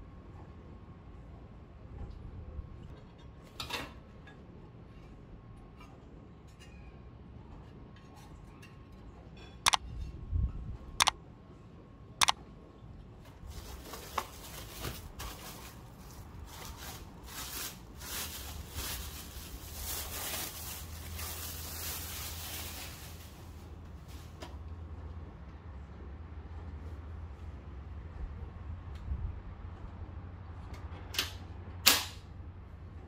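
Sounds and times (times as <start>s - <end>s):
rustling: 13.4s - 24.4s.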